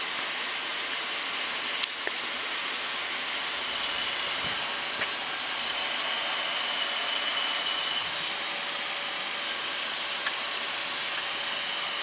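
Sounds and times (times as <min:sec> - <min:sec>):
cooling fans humming: 0:00.0 - 0:12.0
faint high whine: 0:00.0 - 0:12.0.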